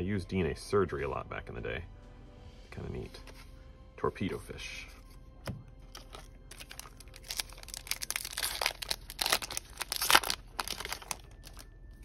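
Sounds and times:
foil pack crinkling and tearing: 5.9s - 12.0s.

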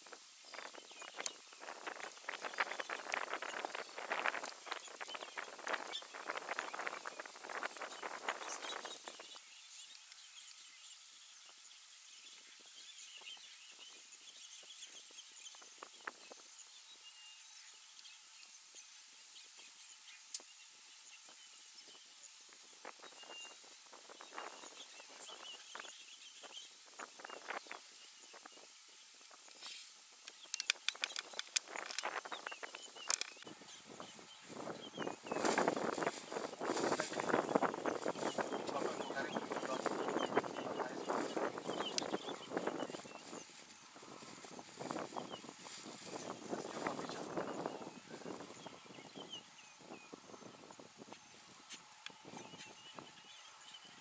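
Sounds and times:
crackling rustles: 0.0s - 11.7s, 17.6s - 48.8s.

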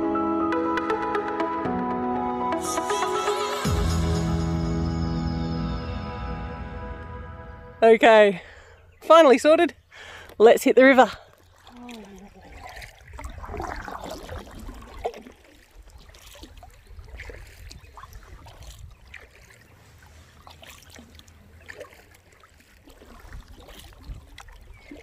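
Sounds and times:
paddle strokes in water: 11.2s - 25.0s
water dripping off paddle: 11.2s - 25.0s.

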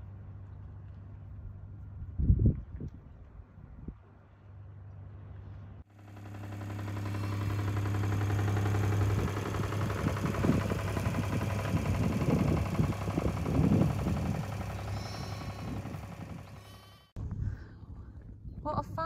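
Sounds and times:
wind buffeting microphone: 1.9s - 4.1s, 6.7s - 16.6s
engine humming: 5.0s - 17.2s.

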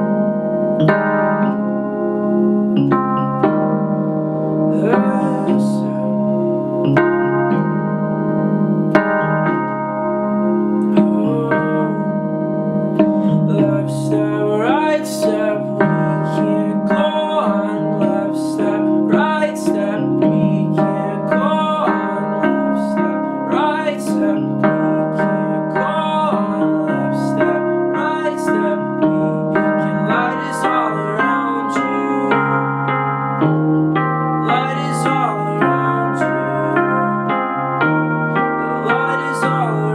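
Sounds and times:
digital piano chords: 0.0s - 39.9s
wordless voice singing: 4.7s - 6.8s, 10.8s - 12.4s, 13.0s - 33.0s, 34.4s - 37.6s, 38.4s - 39.9s.

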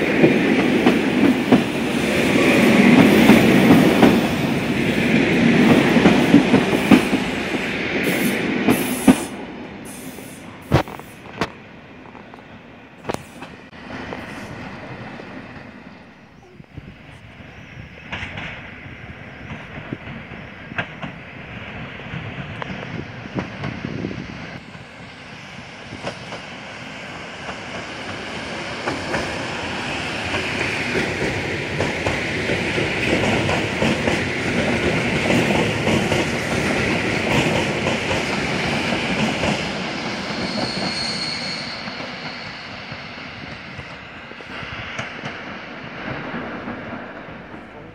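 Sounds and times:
train passing: 0.0s - 47.9s
wheel squeal: 39.9s - 43.4s.

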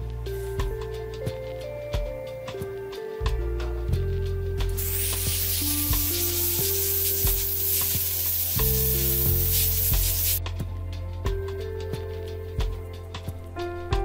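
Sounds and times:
background music: 0.0s - 14.0s
sandblaster hissing: 4.7s - 10.4s.

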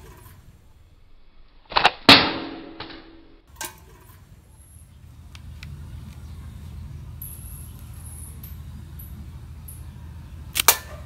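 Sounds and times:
crack with ringing tail: 1.7s - 3.8s.

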